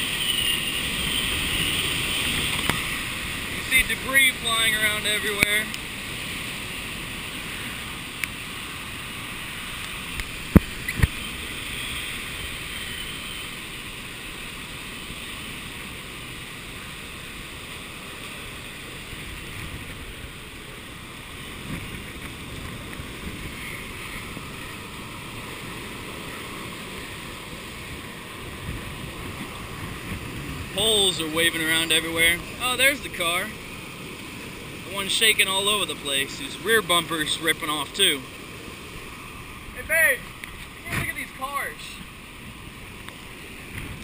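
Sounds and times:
strong wind rushing: 0:27.8 - 0:32.6.

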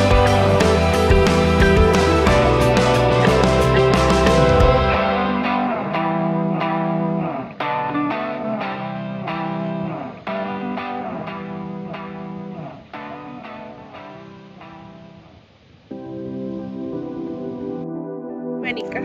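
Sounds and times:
plucked guitar melody: 0:00.0 - 0:15.3.

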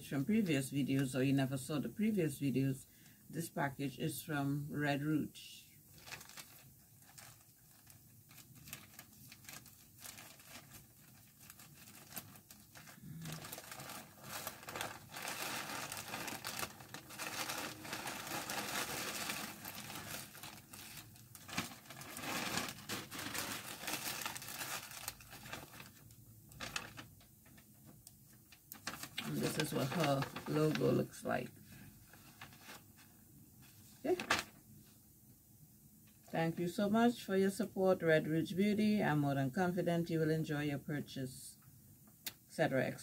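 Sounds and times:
packaging crinkling and rustling: 0:05.8 - 0:34.6.

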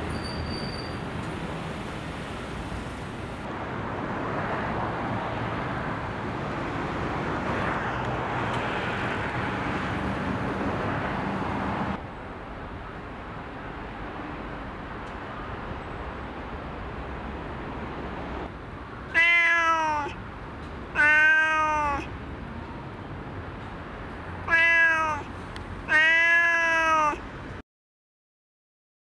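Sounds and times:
cat meowing: 0:19.1 - 0:20.2, 0:20.9 - 0:22.1, 0:24.4 - 0:27.2.

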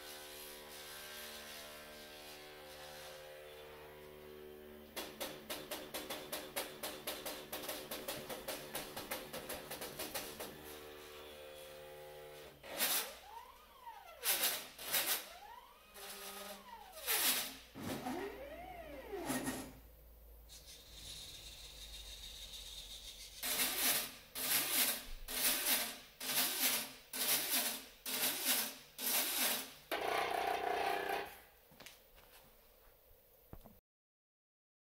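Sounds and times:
robot motors whining: 0:12.9 - 0:19.8
machine hum: 0:14.8 - 0:24.6.

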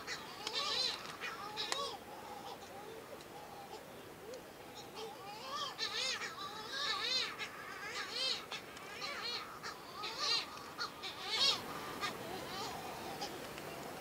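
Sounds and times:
seabirds calling: 0:00.0 - 0:14.0.

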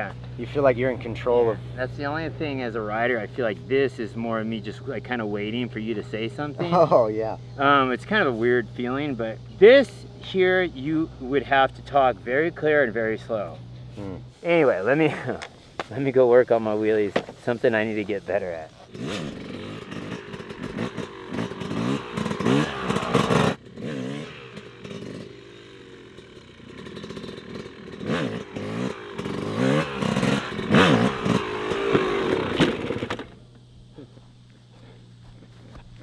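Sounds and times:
two-stroke dirt bike revving: 0:00.0 - 0:33.4.

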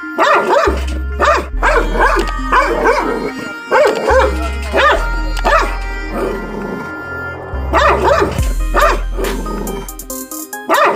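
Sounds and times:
dog barking: 0:00.0 - 0:06.5, 0:07.7 - 0:09.4, 0:10.6 - 0:10.9
background music with bass: 0:00.0 - 0:10.9.

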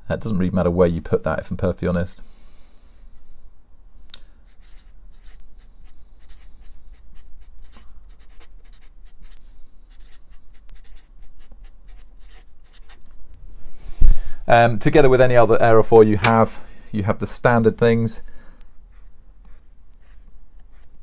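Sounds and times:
marker pen scratching on board: 0:04.5 - 0:13.1, 0:18.9 - 0:21.0.

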